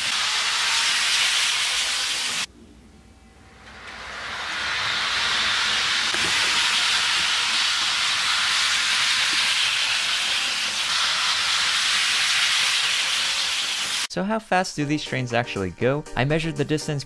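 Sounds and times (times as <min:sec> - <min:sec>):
model train running on track: 0:00.0 - 0:02.4, 0:03.8 - 0:14.1.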